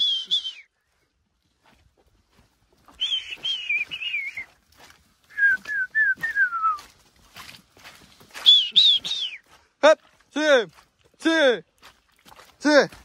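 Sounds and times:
person whistling: 0.0 - 0.7, 3.0 - 4.6, 5.3 - 6.9, 8.4 - 9.4.

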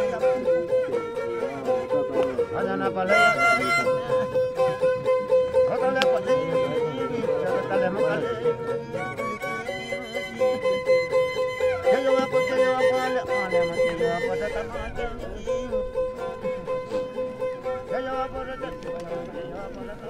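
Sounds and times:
violin drone note: 0.0 - 20.0
violin melody: 0.0 - 20.0.

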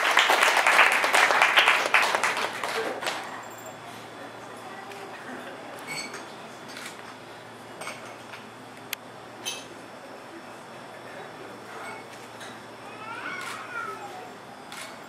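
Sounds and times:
faint room murmur: 0.0 - 15.0
clinking dishes and cutlery: 5.9 - 6.3, 9.4 - 9.8.

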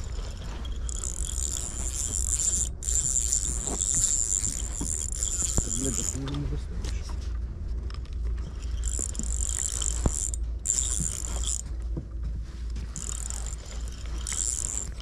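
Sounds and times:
fishing reel whirring: 0.0 - 6.4, 8.5 - 11.7, 12.9 - 15.0.

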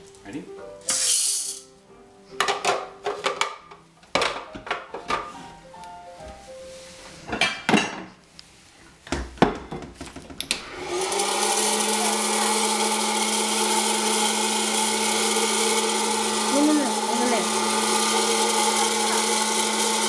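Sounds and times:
popcorn popper fan whirring: 10.4 - 20.0.

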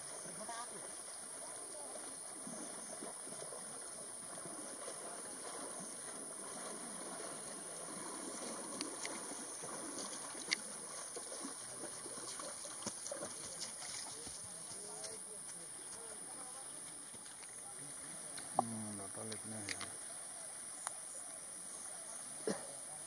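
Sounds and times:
water splashing: 0.0 - 22.6
sharp clicks: 19.3 - 19.9.

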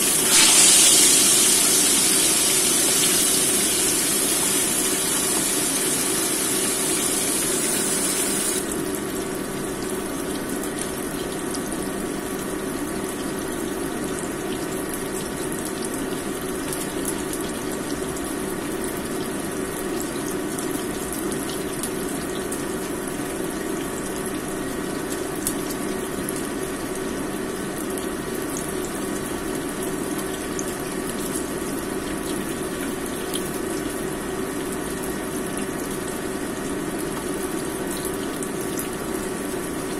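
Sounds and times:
fish sizzling in hot oil: 0.0 - 8.8.

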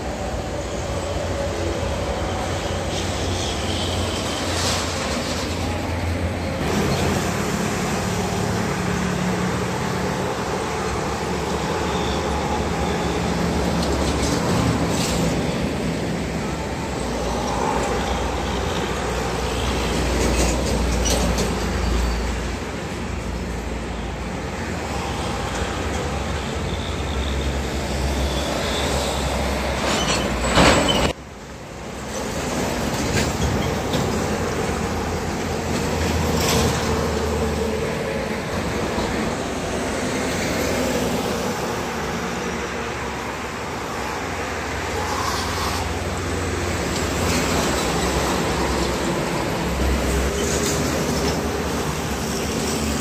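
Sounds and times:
loud vehicle rush: 0.0 - 31.2
heavy traffic rumble: 0.0 - 53.0.

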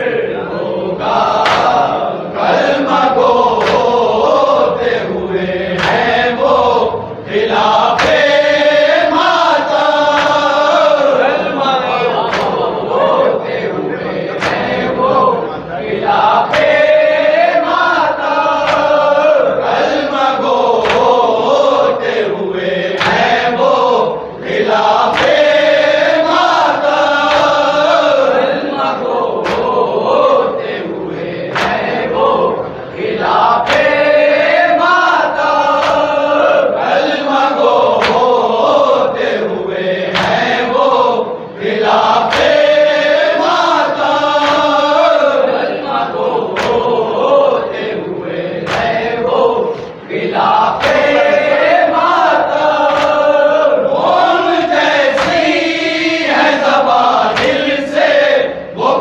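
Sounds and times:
men chanting together: 0.0 - 59.0
sharp slaps: 1.0 - 5.0, 5.6 - 6.8, 7.5 - 11.4, 12.1 - 13.1, 14.3 - 15.1, 16.0 - 21.9, 22.9 - 28.6, 29.2 - 30.8, 31.5 - 32.3, 33.2 - 39.3, 40.0 - 41.2, 41.8 - 45.6, 46.2 - 47.8, 48.6 - 58.2.

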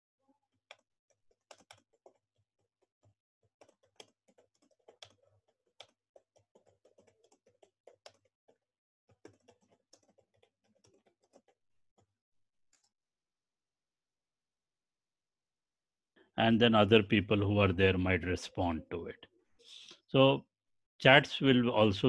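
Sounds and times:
typing on computer keyboard: 0.7 - 12.1.

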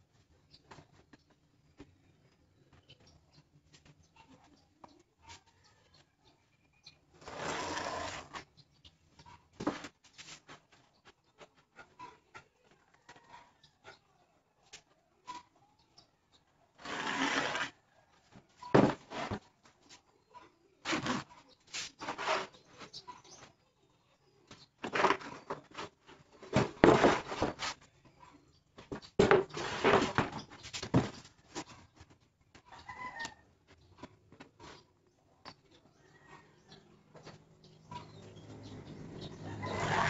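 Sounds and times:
plywood boards scraping and knocking: 16.8 - 17.7, 18.8 - 19.4, 24.8 - 27.8, 28.9 - 31.7.

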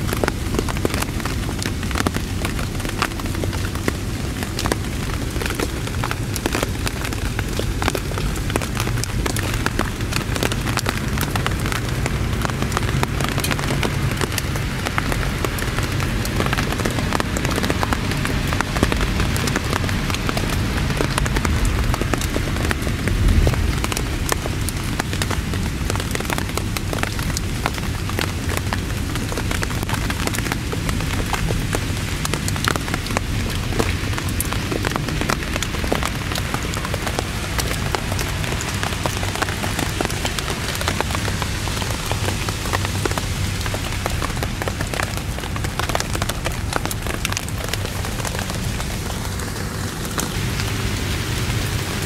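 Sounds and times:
heavy rain falling: 0.0 - 52.0
low rumble: 21.4 - 26.1.

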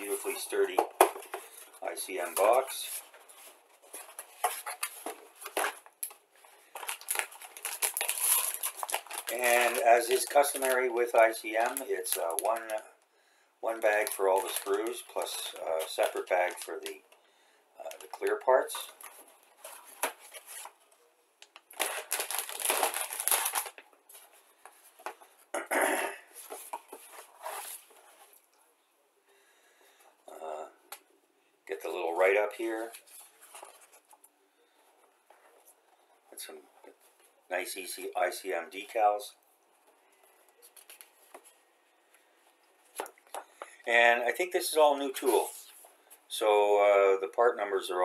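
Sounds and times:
plastic bags crinkling: 0.0 - 12.8, 13.7 - 17.0, 21.4 - 24.1.

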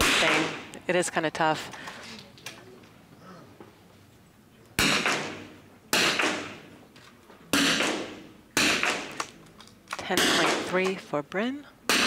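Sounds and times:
rifle shots echoing: 0.0 - 0.7, 4.8 - 6.8, 7.5 - 9.4, 10.1 - 11.0.

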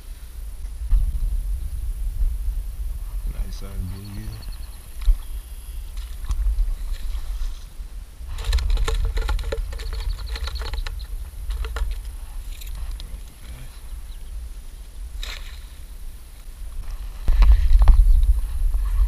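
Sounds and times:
low rumble: 0.0 - 9.7
wire-mesh basket rattling: 8.3 - 13.0.

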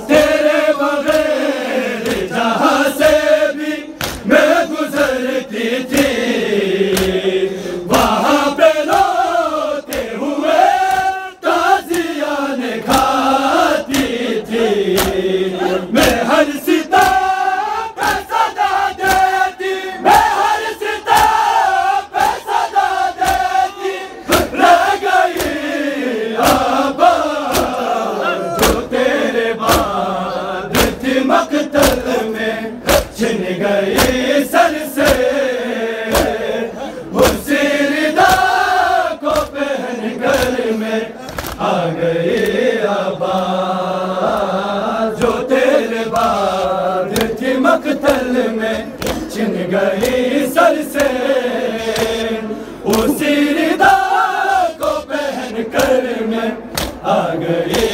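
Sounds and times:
men chanting in unison: 0.0 - 57.9
hands slapping chests: 0.1 - 5.0, 5.8 - 7.2, 7.9 - 17.4, 18.0 - 19.5, 20.1 - 23.6, 24.3 - 25.8, 26.4 - 29.0, 29.6 - 30.0, 30.7 - 33.2, 33.9 - 35.4, 36.1 - 36.5, 37.2 - 42.6, 45.1 - 52.3, 52.9 - 54.0, 55.7 - 56.0, 56.7 - 57.1, 57.7 - 57.9.

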